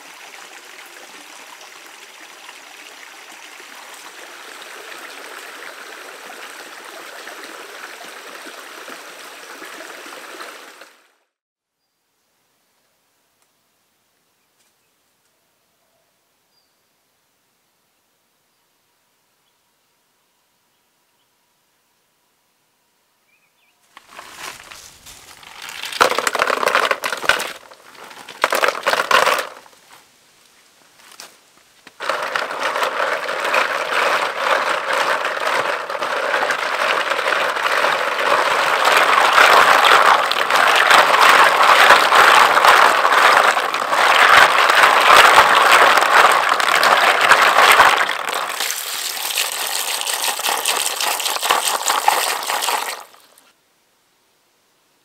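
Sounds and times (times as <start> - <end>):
snails clattering into plastic basin: 24.0 - 29.7, 32.0 - 53.3
shells rattling in sloshing water: 24.0 - 29.8, 32.0 - 53.4.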